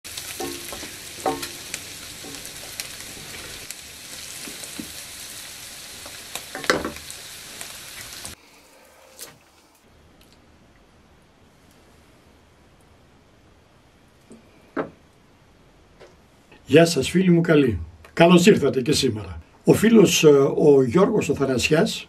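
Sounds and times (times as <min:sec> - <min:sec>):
food sizzling in a hot pan: 0:00.1 - 0:09.2.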